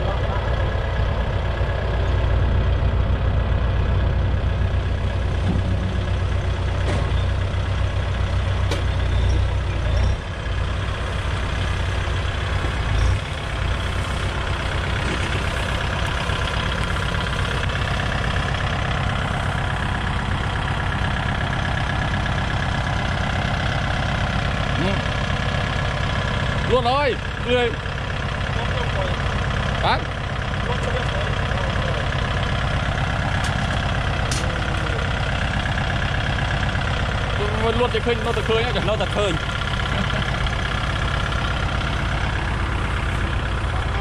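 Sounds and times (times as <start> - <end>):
tractor diesel engine idling: 0.0 - 44.0.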